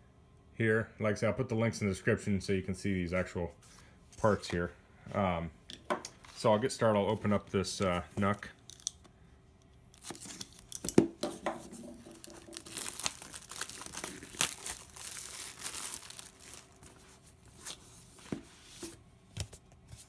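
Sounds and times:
plastic wrap tearing and crinkling: 11.8s - 17.9s.

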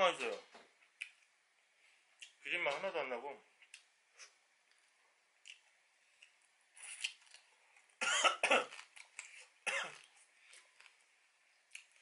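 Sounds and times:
man coughing: 8.0s - 8.7s.

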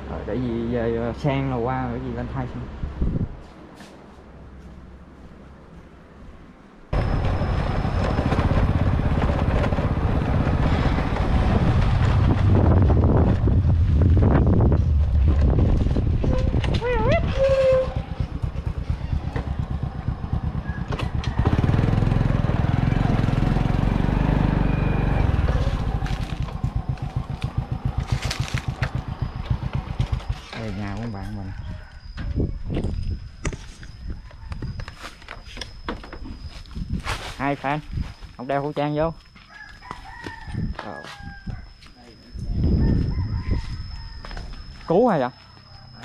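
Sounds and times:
wind on microphone: 2.8s - 3.4s, 10.0s - 18.2s, 31.6s - 35.0s, 40.4s - 41.7s, 42.4s - 44.3s
motorbike engine running: 7.0s - 31.2s.

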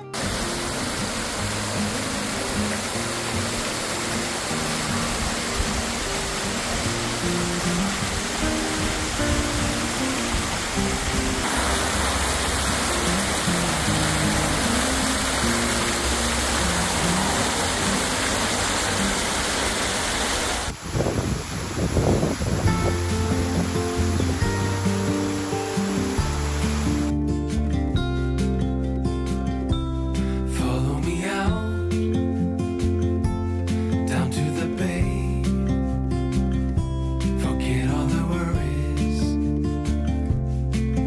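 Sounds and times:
soft background music: 0.0s - 19.6s, 22.6s - 41.0s
waterfall rushing: 0.0s - 27.1s.

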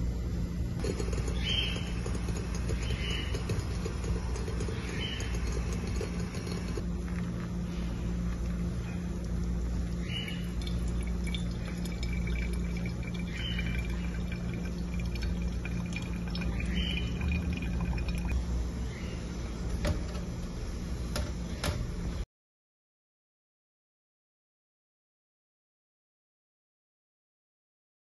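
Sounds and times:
low hum: 0.0s - 22.2s
water pouring onto coffee: 0.8s - 6.8s, 10.4s - 18.3s.

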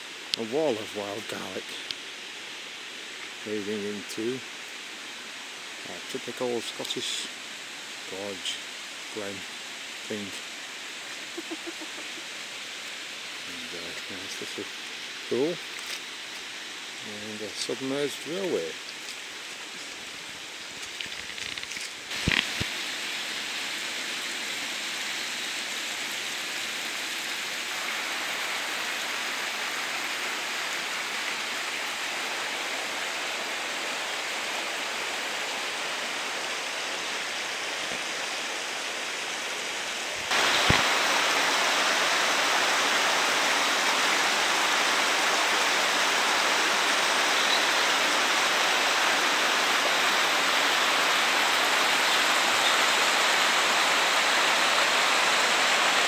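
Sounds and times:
water running over stones: 0.0s - 56.0s.

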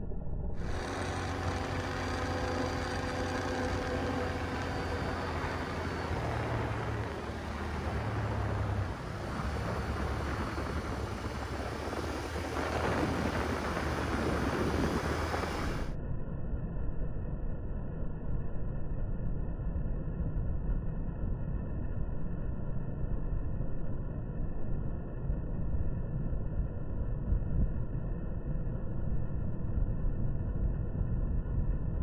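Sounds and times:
steady rushing noise: 0.0s - 16.0s
quad engine running: 0.6s - 15.9s.

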